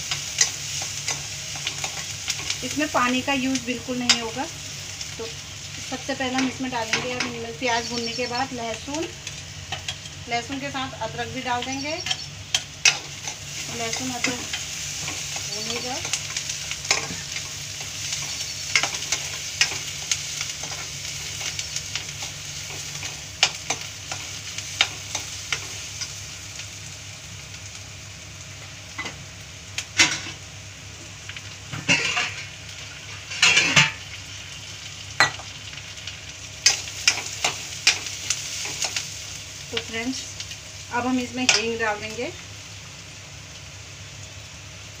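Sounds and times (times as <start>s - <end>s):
food sizzling in a pan: 0.0s - 45.0s
metal spoon scraping a pan: 31.9s - 32.5s, 33.2s - 34.0s.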